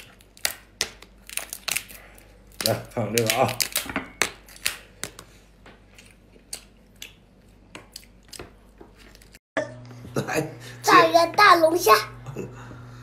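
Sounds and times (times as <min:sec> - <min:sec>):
lobster shell cracking: 0:00.0 - 0:05.2.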